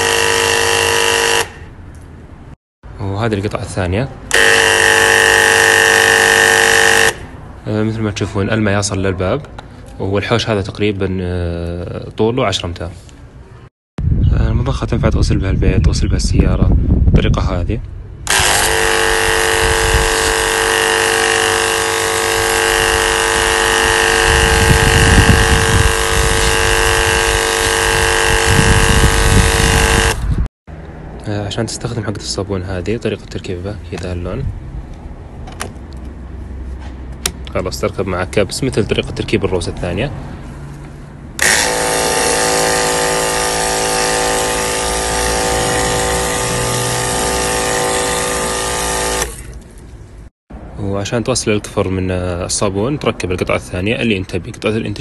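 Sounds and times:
washing pump whining: 0.0 - 1.6, 4.3 - 7.2, 18.3 - 30.2, 41.4 - 49.8.

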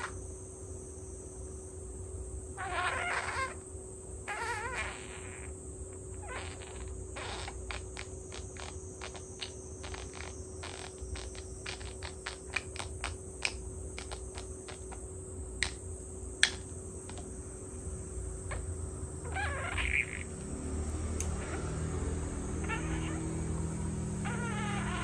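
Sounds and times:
budgerigar chirpy warble: 2.6 - 3.6, 18.5 - 20.4
budgerigar beak clicking: 6.2 - 15.0, 15.6 - 15.8, 16.4 - 17.3, 19.3 - 21.7.

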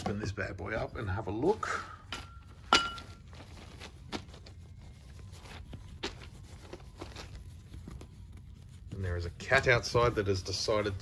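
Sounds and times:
rustling: 2.2 - 11.0.

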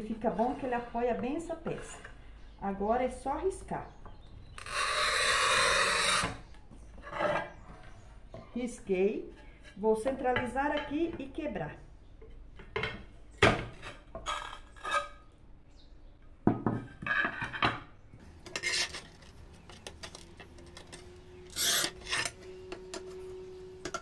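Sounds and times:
scoring wheel rasping across tile: 4.6 - 6.4, 18.4 - 19.4, 21.5 - 22.4.

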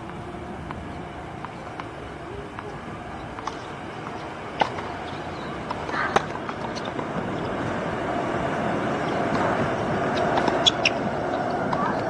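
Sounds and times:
steady background hum: 0.0 - 12.0
racquet striking tennis ball: 3.4 - 7.1, 10.2 - 11.0.

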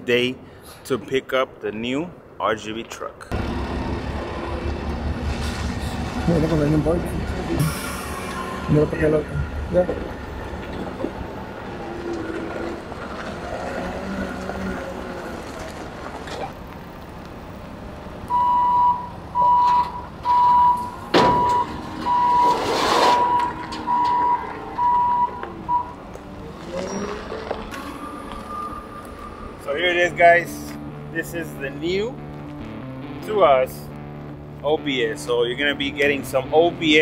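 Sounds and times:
diesel engine running: 3.3 - 33.2
backup alarm beeping: 18.3 - 26.0, 27.8 - 29.7.

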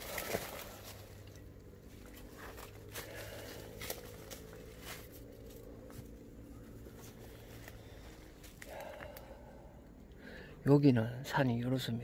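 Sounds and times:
twigs snapping: 0.0 - 6.2, 7.0 - 9.3
footsteps in leaf litter: 2.1 - 5.7.

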